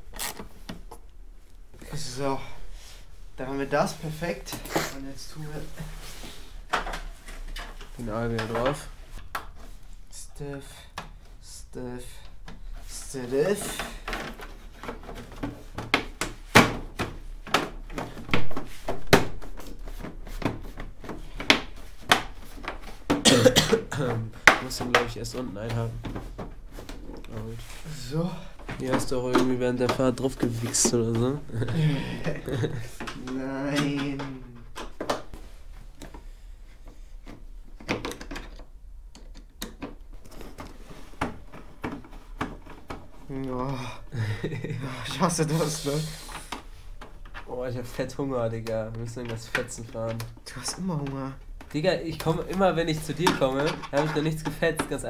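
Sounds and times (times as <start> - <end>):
clicks and knocks of parts: 36.8 - 43.3.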